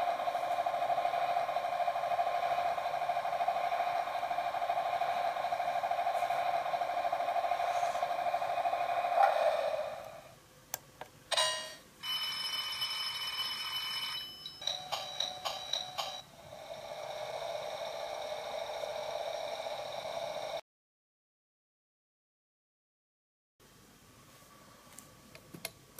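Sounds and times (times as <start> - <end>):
steady electronic hum: 0.0 - 12.6, 13.4 - 20.6.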